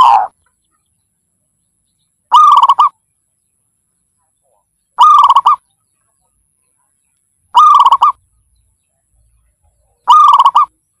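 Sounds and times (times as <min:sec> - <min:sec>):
dove cooing: 0:00.0 - 0:00.4, 0:02.3 - 0:03.0, 0:05.0 - 0:05.6, 0:07.5 - 0:08.2, 0:10.0 - 0:10.8.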